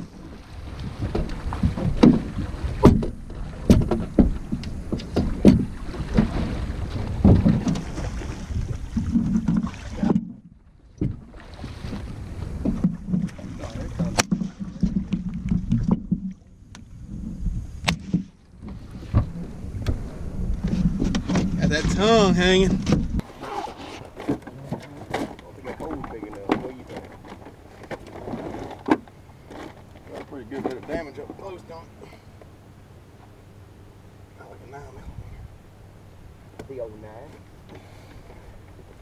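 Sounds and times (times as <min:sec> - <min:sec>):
alligator thrashing and splashing: 0:00.0 - 0:10.3
sharp knocks on a boat: 0:00.0 - 0:16.8, 0:17.8 - 0:23.2, 0:24.1 - 0:31.4, 0:36.5 - 0:38.5.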